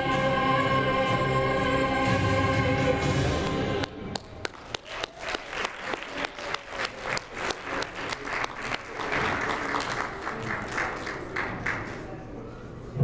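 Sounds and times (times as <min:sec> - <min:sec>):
sharp individual clapping: 0:03.8 - 0:12.0
audience applauding: 0:04.2 - 0:12.2.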